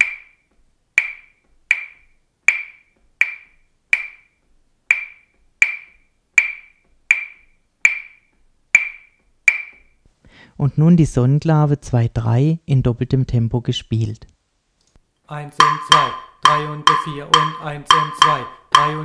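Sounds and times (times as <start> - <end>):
wooden claves clicking: 1.0 - 4.3, 4.9 - 9.9, 15.6 - 19.0.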